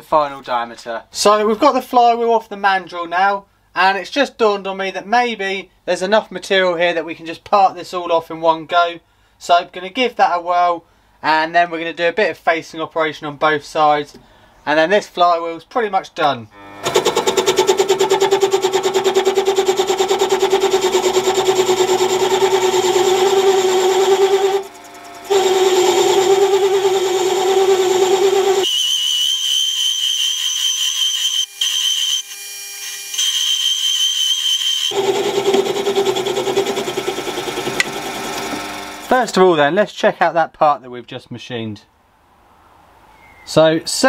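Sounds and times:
lathe cutting whine: 0:16.6 - 0:39.1
thin high whistle: 0:28.6 - 0:34.9, 0:43.1 - 0:43.6.

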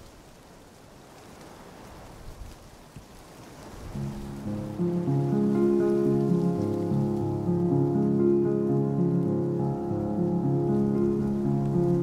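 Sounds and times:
sustained background music notes: 0:04.0 - 0:12.0.

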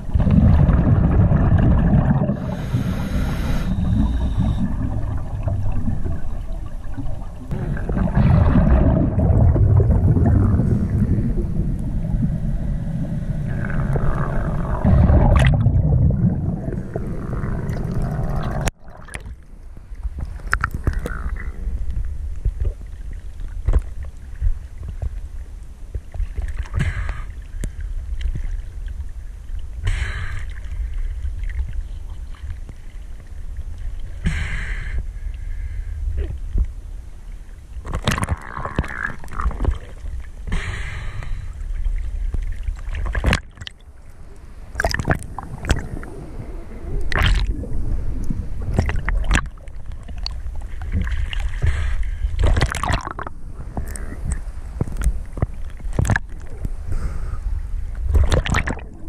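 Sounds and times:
muffled underwater rumble: 0:00.0 - 0:59.0
water sloshing: 0:47.0 - 0:56.6, 0:58.1 - 0:59.0.

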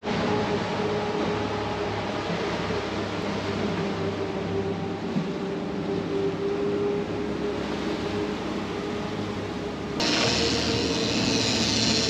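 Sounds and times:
boat engines humming: 0:00.0 - 0:12.0
wind: 0:00.0 - 0:12.0
wake rushing: 0:07.2 - 0:12.0
thin high tone: 0:10.0 - 0:12.0.

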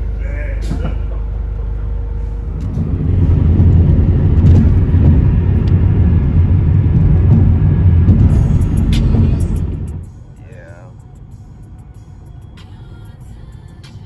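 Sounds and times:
car engine idling: 0:00.0 - 0:14.0
cars rumbling at highway speed: 0:00.0 - 0:14.0.

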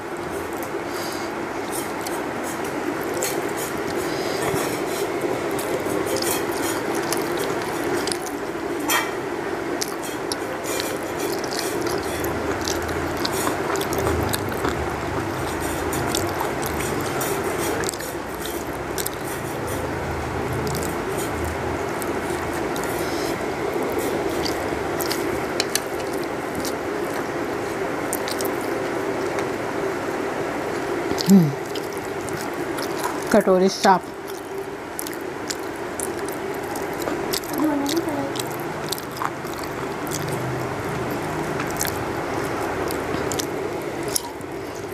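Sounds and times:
fingers squishing food: 0:05.6 - 0:08.4, 0:09.8 - 0:19.9, 0:28.1 - 0:28.8, 0:34.1 - 0:44.9
brief vocal sound: 0:31.2 - 0:31.6.

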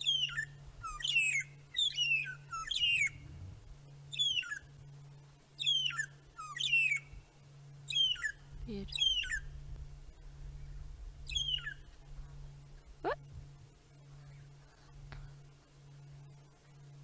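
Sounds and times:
birds whistling: 0:00.0 - 0:03.2, 0:04.1 - 0:04.7, 0:05.6 - 0:07.1, 0:07.9 - 0:09.5, 0:10.6 - 0:11.9.

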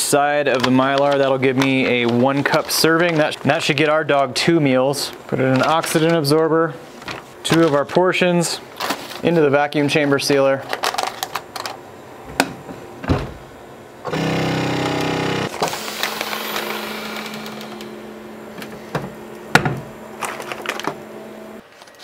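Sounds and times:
vacuum sealer running: 0:14.0 - 0:21.6
low hum: 0:14.2 - 0:21.6
handling noise: 0:15.5 - 0:22.0.

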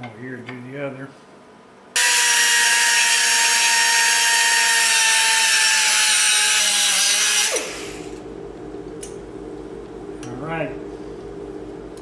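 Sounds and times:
die grinder cutting steel: 0:02.0 - 0:08.2.

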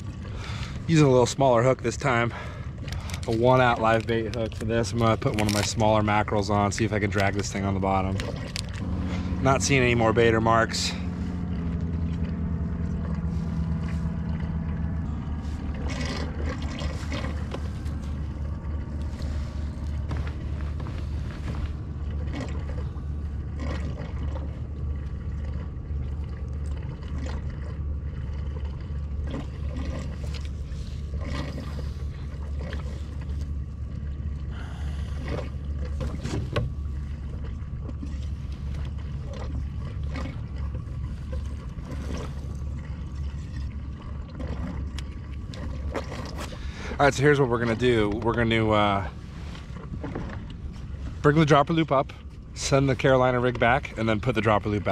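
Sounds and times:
steady low rumble: 0:00.0 - 0:54.9
small clicks and rustles of fishing gear: 0:02.8 - 0:06.1, 0:06.7 - 0:08.8.

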